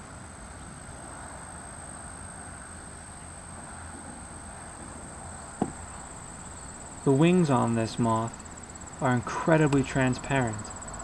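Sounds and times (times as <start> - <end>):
even hiss: 5.5 - 11.0.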